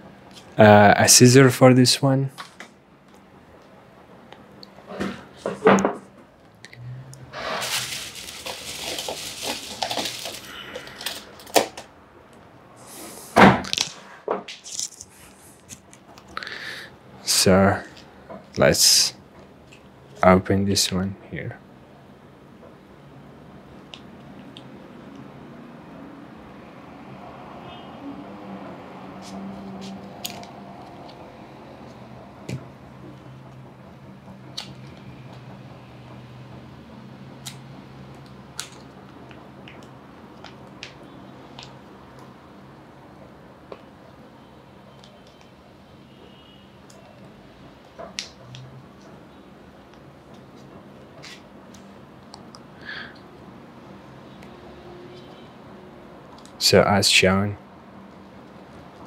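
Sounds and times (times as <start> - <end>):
handling rustling: 7.4 - 10.5
foil crinkling: 7.4 - 11.6.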